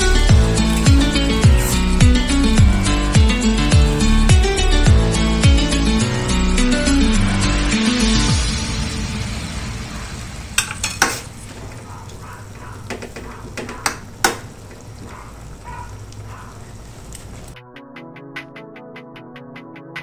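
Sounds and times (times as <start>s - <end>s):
low sizzle: 0.0s - 17.6s
metal ladle clinking on wok: 10.6s - 11.3s.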